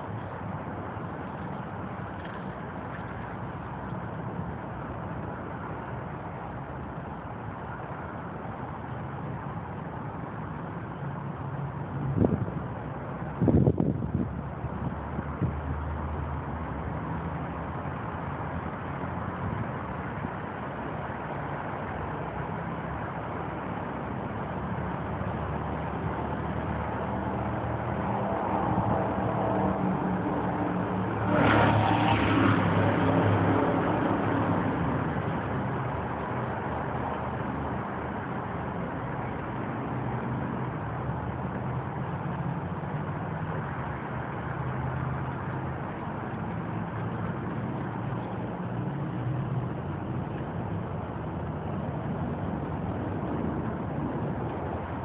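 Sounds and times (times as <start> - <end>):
road traffic hum: 0.0 - 55.0
vehicle passing: 26.4 - 38.1.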